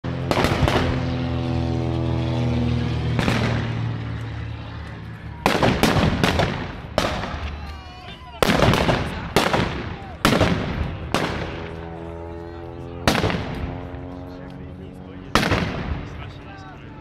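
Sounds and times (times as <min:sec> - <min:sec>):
propeller plane engine droning: 0:00.0 - 0:17.0
gunshots: 0:00.2 - 0:01.4, 0:03.1 - 0:04.0, 0:05.4 - 0:07.6, 0:08.4 - 0:11.9, 0:13.0 - 0:13.9, 0:15.3 - 0:16.3.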